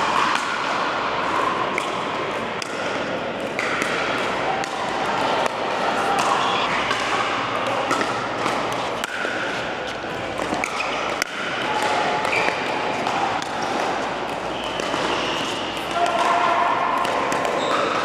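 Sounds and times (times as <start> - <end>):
background din of voices: 4.3 - 8.8.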